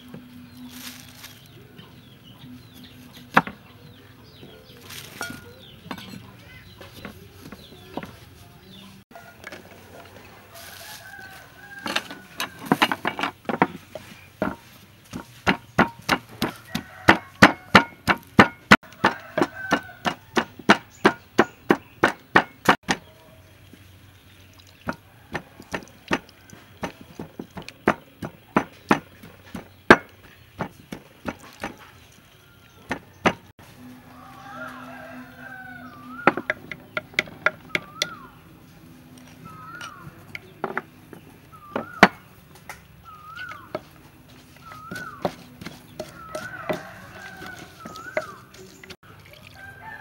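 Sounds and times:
pestle pounding in clay mortar: 11.8s - 23.1s, 24.8s - 32.0s, 32.8s - 33.5s, 36.2s - 38.2s, 41.6s - 42.3s, 44.6s - 48.6s
bird chirping: 35.5s - 49.0s.

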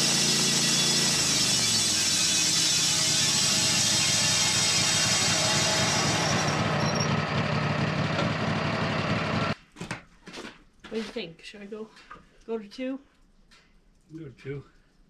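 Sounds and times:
band blade sawing log: 0.0s - 9.6s
sawmill engine running: 0.0s - 9.6s.

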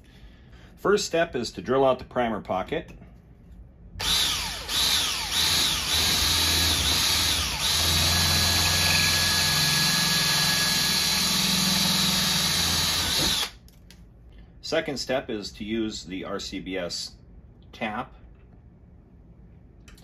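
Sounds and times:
cordless drill drilling brass: 4.0s - 13.6s.

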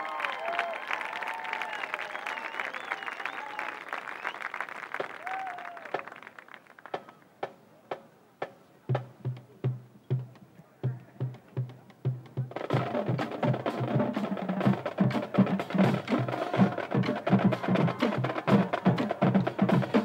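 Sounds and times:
crowd applause and cheers: 0.0s - 7.2s, 12.7s - 20.0s
bass drums beating: 8.9s - 20.0s.

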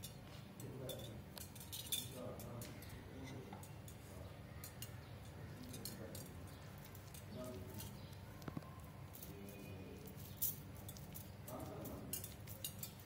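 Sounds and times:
light clicks and clinks on plate: 0.0s - 13.0s
low steady background hum: 0.0s - 13.0s.

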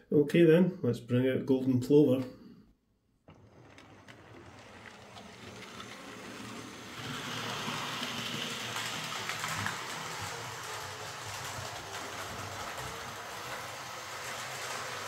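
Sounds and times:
model train motor whirr: 3.3s - 15.0s
wheels rattling on rails: 3.3s - 15.0s.

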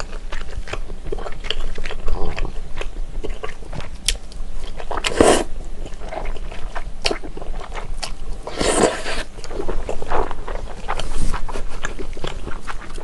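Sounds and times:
sticky chewing: 0.0s - 13.0s
noodles slurping: 4.9s - 5.5s, 8.4s - 9.3s.

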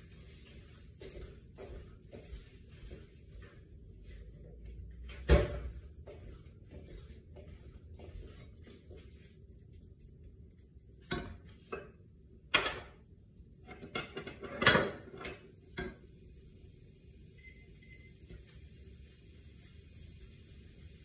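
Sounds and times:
utensils clacking and knocking: 12.6s - 13.0s, 13.7s - 16.0s.

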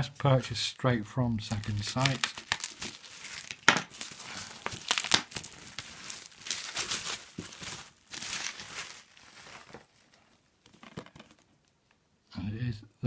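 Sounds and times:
packaging crinkling and tearing: 1.4s - 11.5s.

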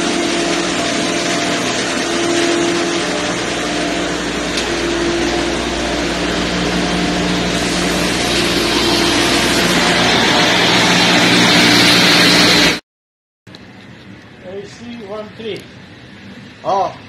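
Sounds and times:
engine room machinery roar: 0.0s - 12.8s.

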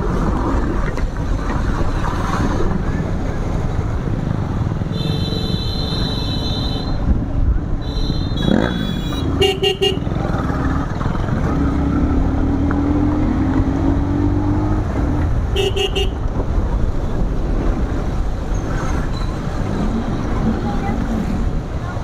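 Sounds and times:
wind: 0.0s - 22.0s
vehicle horn tooting: 5.0s - 7.0s, 7.8s - 10.1s, 15.6s - 16.2s.

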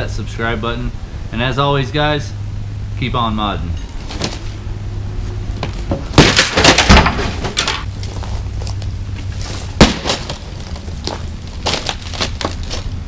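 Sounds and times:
pickaxe smashing monitor: 6.2s - 7.8s, 9.8s - 10.8s
plastic and screen cracking: 9.8s - 12.9s.

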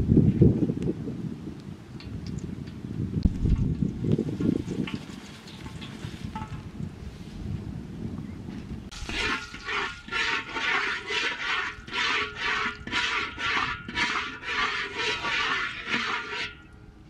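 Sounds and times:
water splashing in strokes: 8.9s - 16.7s.

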